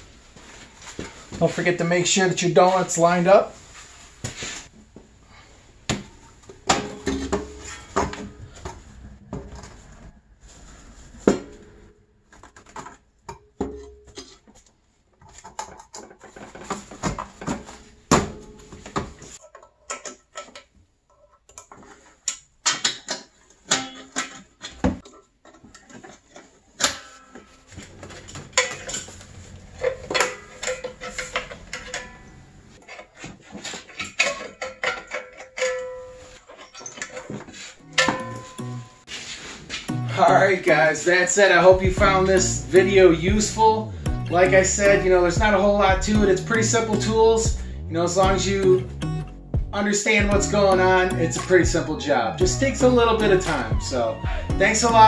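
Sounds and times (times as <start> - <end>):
metal exhaust parts clanking: 6.2 - 10.2, 13.3 - 14.5, 26.8 - 39.1.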